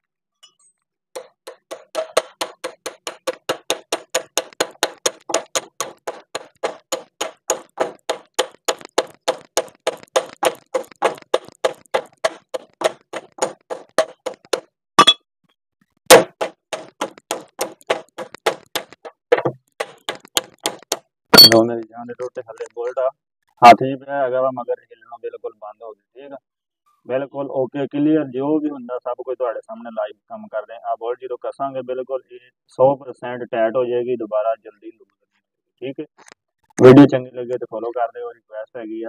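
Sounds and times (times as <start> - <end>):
metal knocks: 1.2 - 15.2.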